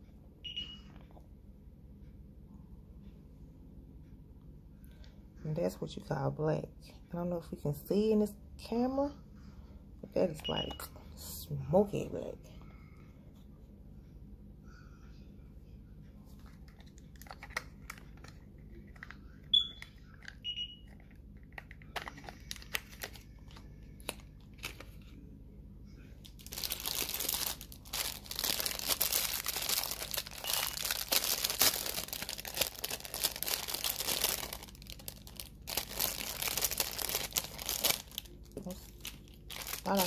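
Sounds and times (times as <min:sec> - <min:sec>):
plastic packaging crinkling: 0:16.4 - 0:19.2, 0:19.9 - 0:25.0, 0:26.2 - 0:40.0.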